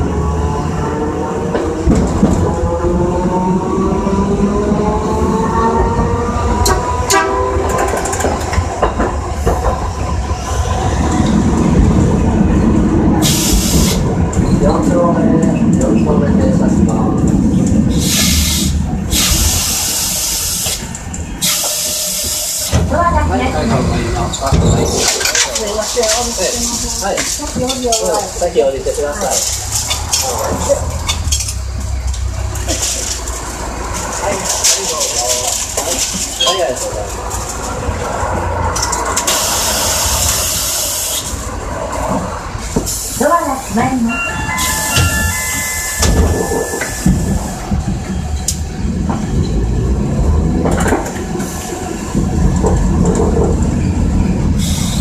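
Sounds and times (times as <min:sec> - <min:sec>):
tram running rumble: 0:00.0 - 0:55.0
air brakes hissing: 0:13.2 - 0:14.1, 0:17.9 - 0:22.9, 0:39.2 - 0:41.5, 0:42.6 - 0:43.4, 0:44.2 - 0:47.7, 0:51.4 - 0:52.1, 0:54.6 - 0:55.0.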